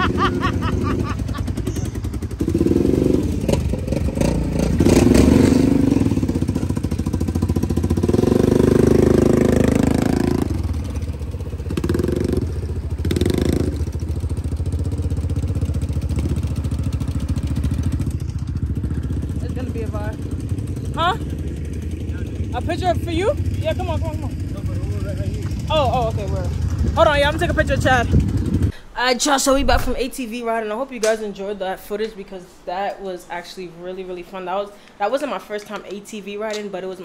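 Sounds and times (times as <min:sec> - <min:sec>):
off-road vehicle engines humming: 0:00.0 - 0:28.8.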